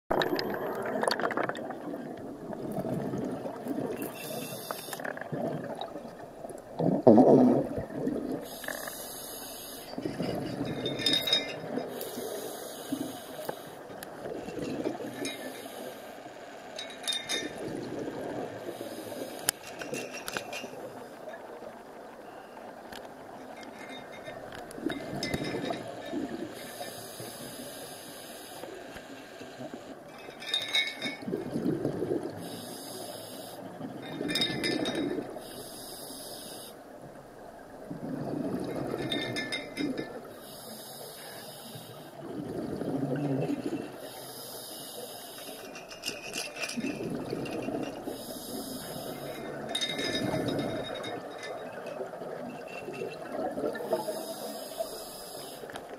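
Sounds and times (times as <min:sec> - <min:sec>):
gurgling exhaled bubbles: 0:00.1 - 0:09.0, 0:09.8 - 0:12.0, 0:31.0 - 0:32.6, 0:37.8 - 0:40.3, 0:42.2 - 0:44.1, 0:46.7 - 0:54.4
regulator hissing in-breath: 0:04.0 - 0:05.0, 0:08.4 - 0:10.0, 0:11.9 - 0:13.9, 0:15.3 - 0:16.4, 0:18.7 - 0:19.6, 0:26.5 - 0:29.6, 0:32.4 - 0:33.7, 0:35.4 - 0:36.8, 0:40.4 - 0:42.2, 0:44.0 - 0:45.8, 0:48.0 - 0:49.5, 0:53.8 - 0:55.8.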